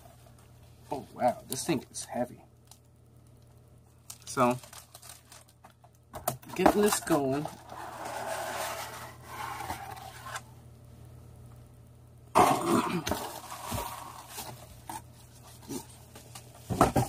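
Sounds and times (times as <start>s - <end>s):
paper and cardboard rustling: 6.5s - 10.4s, 13.1s - 17.0s
grunt-like voice: 12.4s - 13.1s.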